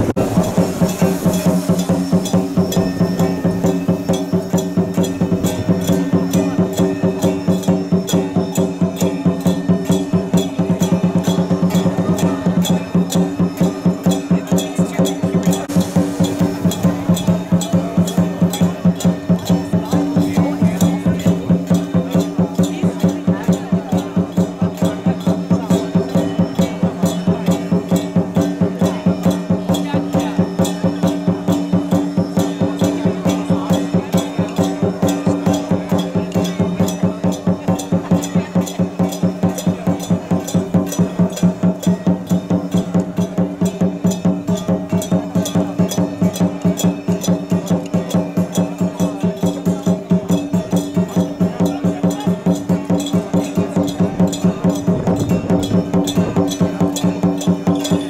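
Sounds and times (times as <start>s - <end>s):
steady held tones: 0.0s - 23.2s, 50.8s - 58.0s
fast wood-block beat: 0.0s - 58.0s
traditional music: 0.0s - 58.0s.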